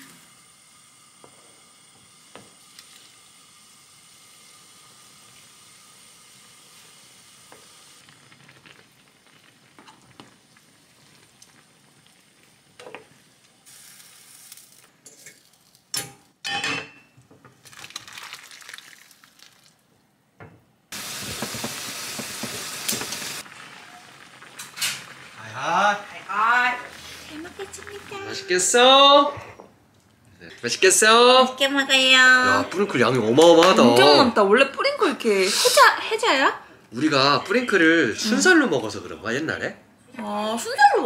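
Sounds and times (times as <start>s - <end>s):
sauce simmering and sizzling: 0.0s - 15.9s, 17.6s - 20.0s, 20.9s - 28.9s
metal pans clanking: 16.0s - 17.2s.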